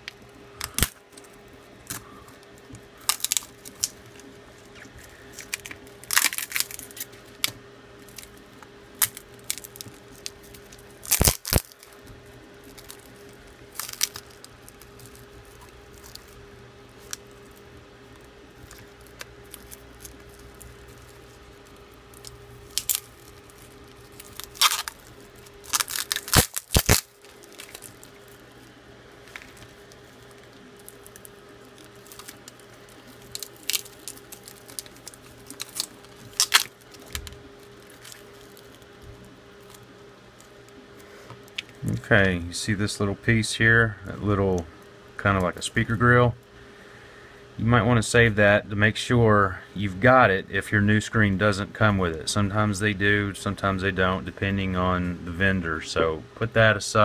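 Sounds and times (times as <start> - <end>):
glass screen cracking and snapping: 0.6 - 2.0, 3.0 - 8.4, 9.0 - 16.4, 17.0 - 28.5, 29.2 - 39.8.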